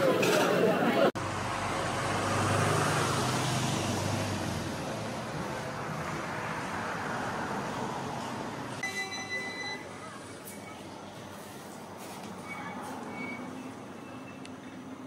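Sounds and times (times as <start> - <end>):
road noise: 0.0 - 15.0
passing vehicle engine hum: 0.6 - 8.8.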